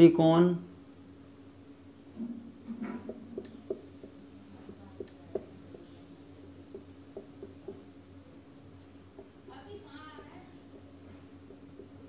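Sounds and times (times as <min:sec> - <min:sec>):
faint steady hum: 0:00.0 - 0:12.0
marker pen tapping and scratching: 0:02.8 - 0:07.9, 0:10.1 - 0:12.0.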